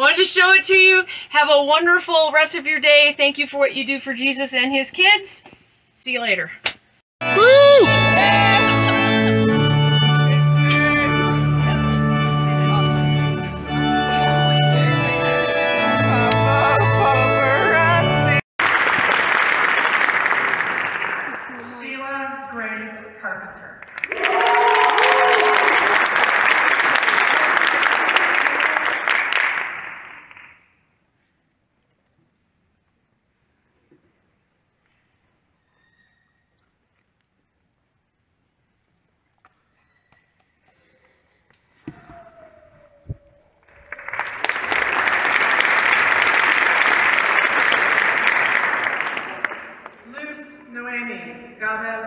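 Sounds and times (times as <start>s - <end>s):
audience applauding: 14.7s - 21.6s, 23.8s - 30.6s, 43.6s - 50.0s.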